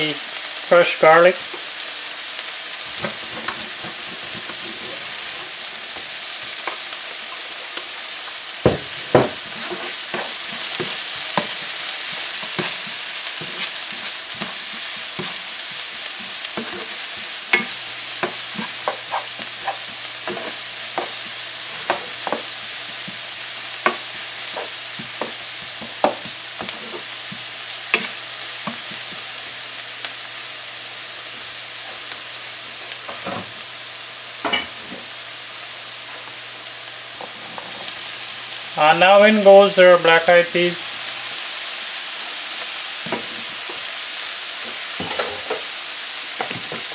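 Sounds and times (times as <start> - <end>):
vegetables sizzling in oil: 0.0 - 46.9
spatula scraping a pan: 2.9 - 6.0, 8.8 - 23.2, 23.8 - 29.2.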